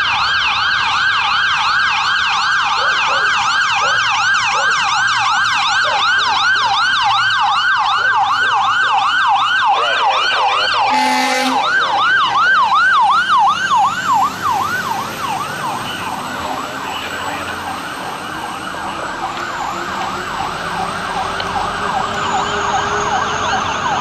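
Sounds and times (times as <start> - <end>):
fire engine siren yelping: 0.0 - 24.0
vehicle horn blast: 10.9 - 11.7.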